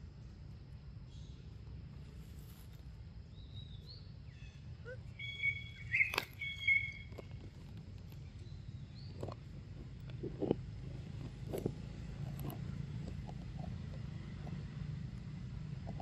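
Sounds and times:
faint bird chirps: 1.1 - 1.5, 3.3 - 7.4
whistled bird notes: 3.4 - 7.2.

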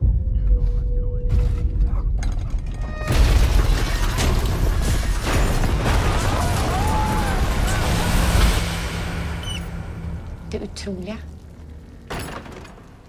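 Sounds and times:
trailer music: 0.0 - 12.0
crashes and knocks: 3.1 - 9.9.

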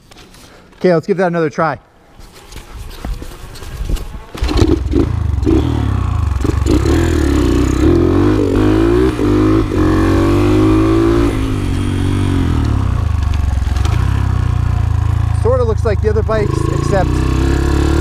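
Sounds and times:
motorcycle engine revving: 4.2 - 18.0.

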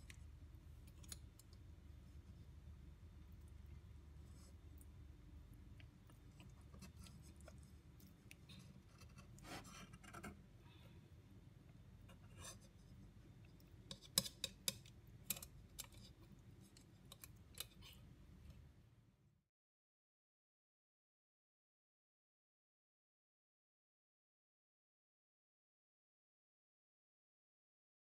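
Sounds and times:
faint low hum: 0.0 - 19.4.

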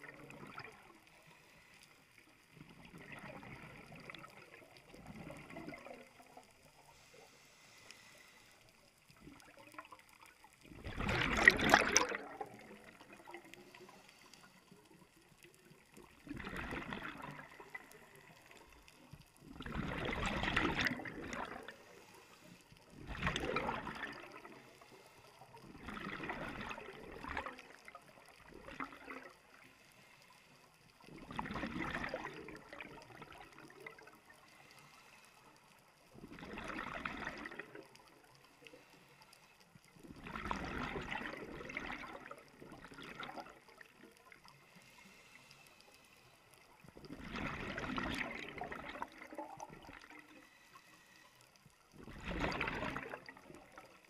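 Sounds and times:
quiet regulator hiss: 0.0 - 31.4, 32.0 - 40.4, 41.0 - 47.8, 48.8 - 54.0
underwater exhaust bubbles gurgling: 0.0 - 54.0.

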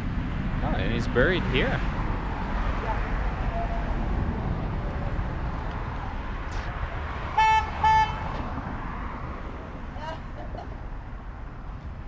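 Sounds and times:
steady low rumble: 0.0 - 7.3
car horn beeps: 7.4 - 8.3.

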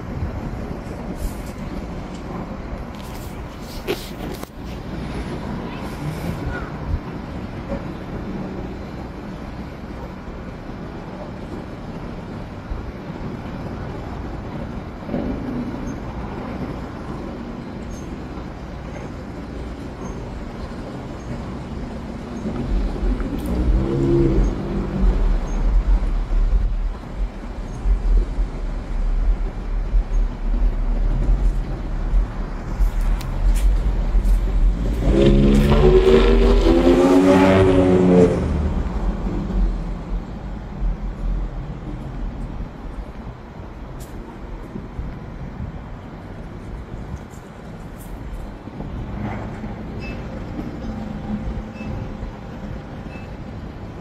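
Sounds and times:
wind on microphone: 0.0 - 17.6, 18.5 - 53.2
vehicle engine accelerating: 22.6 - 26.7, 33.5 - 39.8.

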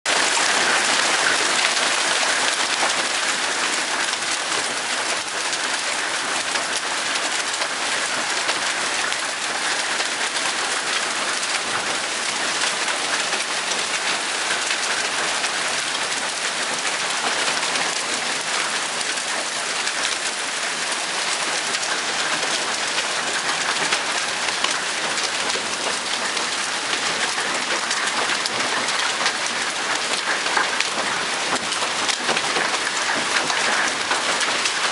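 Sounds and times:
hail and heavy rain pelting: 0.1 - 34.9.

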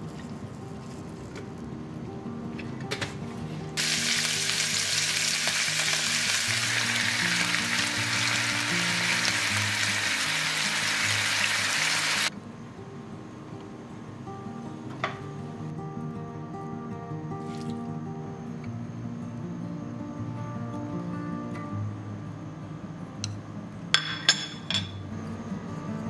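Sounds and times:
soft background music: 0.0 - 26.0
skewers sizzling in hot pan: 3.8 - 12.3.

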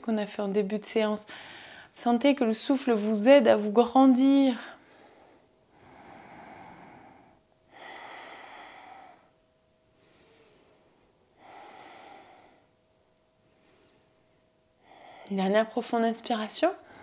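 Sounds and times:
woman breathing deeply: 1.3 - 2.0, 4.6 - 15.3, 16.8 - 17.0.

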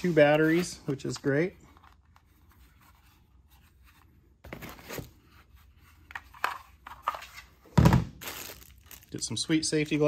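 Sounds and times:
plastic battery packs handled: 5.9 - 10.0
foam packaging rustling: 8.2 - 9.3.

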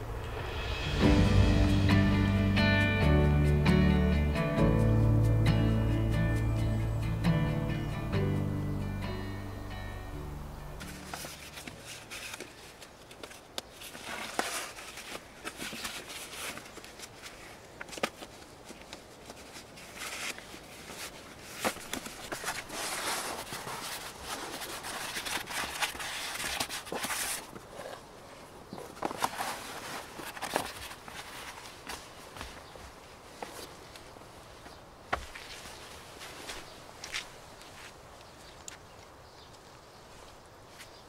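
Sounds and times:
gear rustling and scuffling: 10.7 - 41.0
footsteps on forest floor: 10.8 - 41.0.

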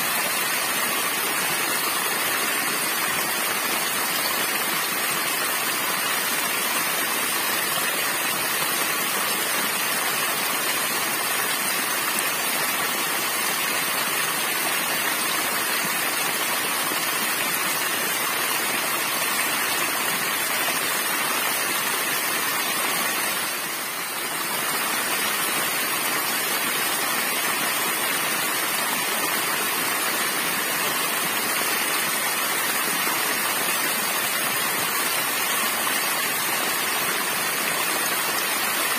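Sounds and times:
waterfall splashing into stream: 0.0 - 38.9.

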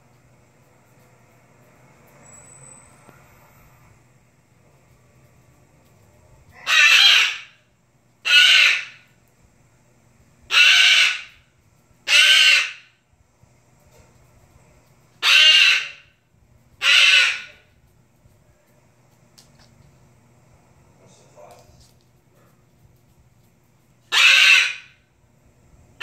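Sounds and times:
cockatoo screeching: 6.5 - 7.6, 8.2 - 9.1, 10.5 - 11.4, 12.0 - 13.0, 15.2 - 16.2, 16.8 - 17.7, 24.1 - 25.0.

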